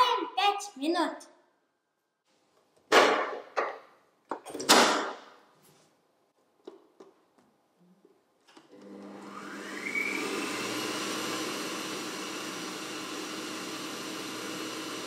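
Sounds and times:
stand mixer motor whining: 8.7s - 15.0s.

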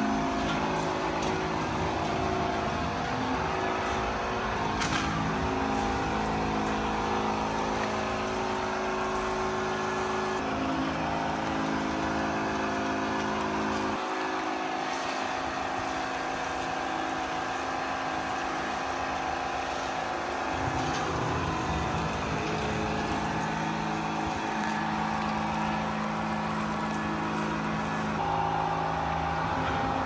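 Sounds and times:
pressure washer motor hum: 0.0s - 30.0s
water spraying hiss: 14.0s - 28.2s.

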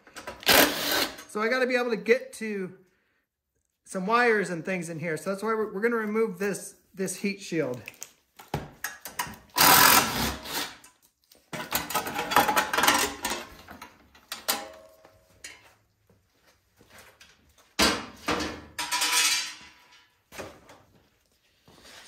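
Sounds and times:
metal handling: 11.5s - 15.7s, 18.3s - 20.2s
hand tools clicking and rattling: 11.6s - 15.6s.

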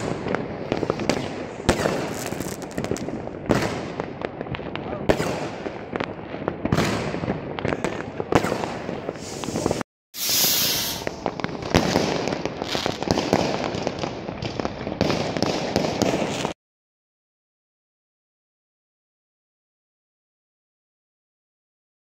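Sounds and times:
fireworks bangs and crackling: 0.0s - 16.6s
loud hissing rush: 9.2s - 11.2s.

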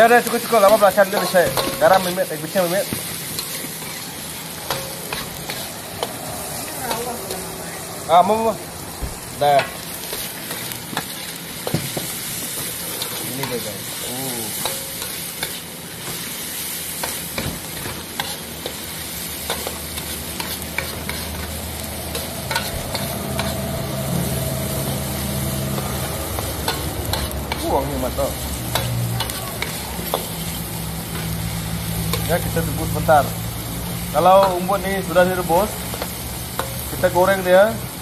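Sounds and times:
food sizzling in oil: 0.0s - 38.0s
metal ladle scraping wok: 0.4s - 7.4s, 17.0s - 32.4s.

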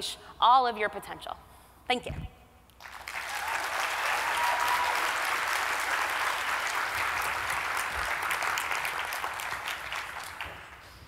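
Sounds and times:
large audience applauding: 2.8s - 10.8s.

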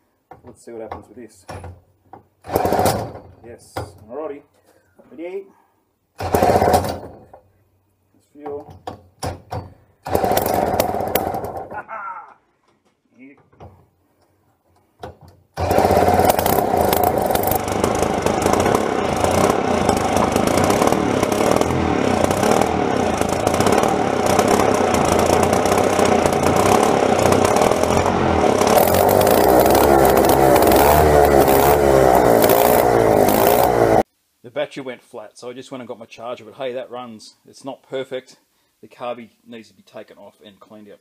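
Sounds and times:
two-stroke engine running: 6.2s - 7.0s, 10.1s - 11.6s, 15.6s - 34.0s.

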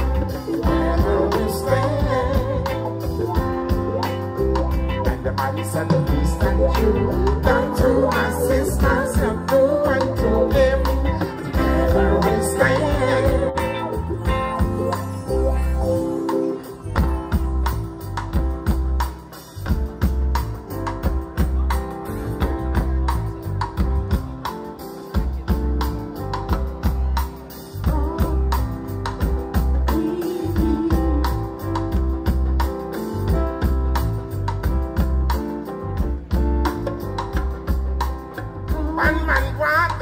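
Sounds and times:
heavy bass line: 0.0s - 19.0s
reggae band playing: 0.0s - 40.0s.

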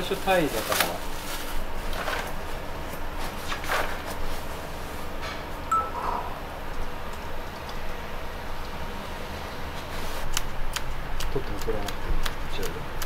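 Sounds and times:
plastic bag rustling: 0.0s - 5.0s
low kitchen hum: 0.0s - 13.0s
short beep: 5.7s - 6.2s.

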